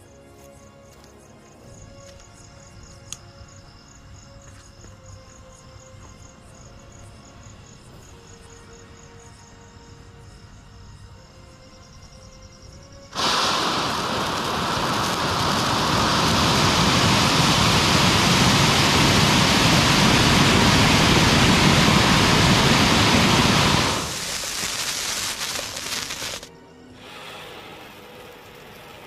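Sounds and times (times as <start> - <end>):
firework fountain hissing: 13.1 - 29.0.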